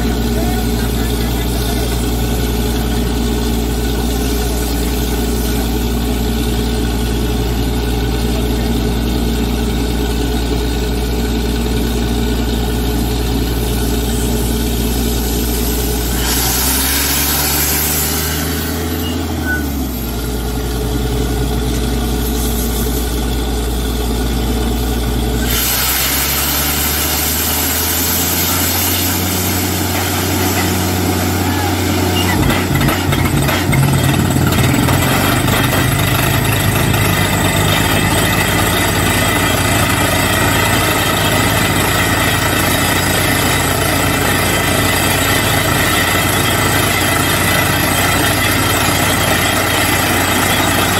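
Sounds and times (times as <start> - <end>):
drilling rig engine drone: 0.0 - 50.9
loud hiss: 13.7 - 19.4, 25.4 - 32.7.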